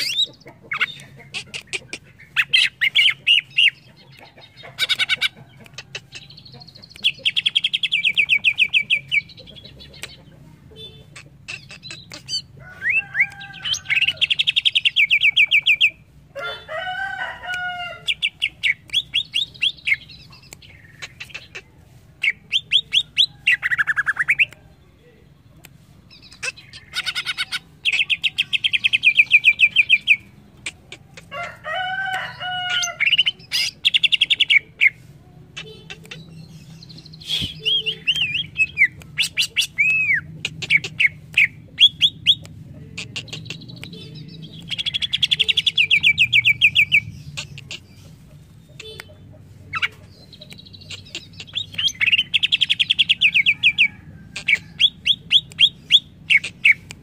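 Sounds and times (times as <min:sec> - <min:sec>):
bird harsh chattering: 0:00.0 - 0:15.9, 0:18.0 - 0:24.5, 0:26.1 - 0:31.3, 0:32.6 - 0:42.4, 0:43.0 - 0:57.0
bird trilling and whistling: 0:37.2 - 0:42.4.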